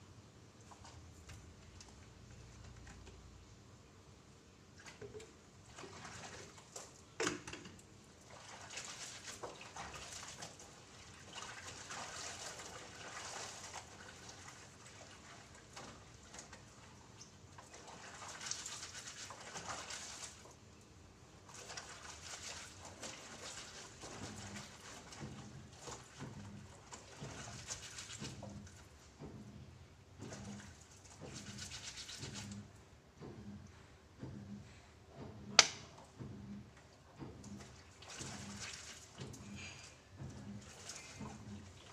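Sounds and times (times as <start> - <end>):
wet fabric scrubbed in water: 4.8 - 7.2, 8.1 - 20.7, 21.3 - 32.8, 37.0 - 41.9.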